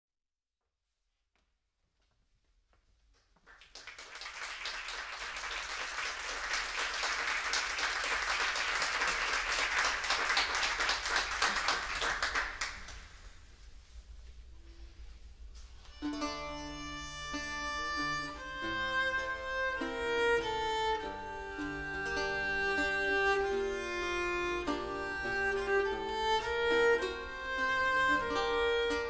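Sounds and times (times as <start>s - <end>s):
audience applauding: 3.4s - 13.2s.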